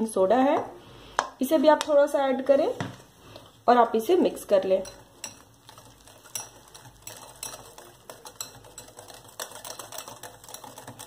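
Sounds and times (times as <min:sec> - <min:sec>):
whisk clicking against glass bowl: 0:04.8 - 0:11.0.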